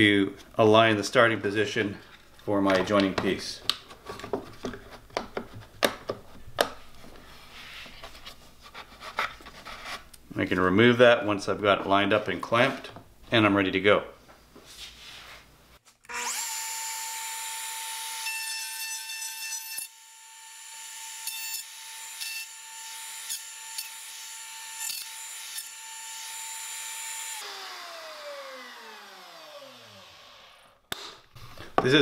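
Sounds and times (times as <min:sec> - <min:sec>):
router motor whining: 0:16.1 - 0:18.5, 0:19.8 - 0:30.8.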